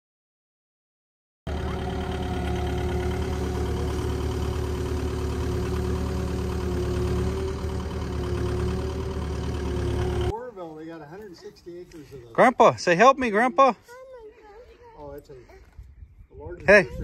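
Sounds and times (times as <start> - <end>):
excavator diesel engine: 1.5 - 10.4.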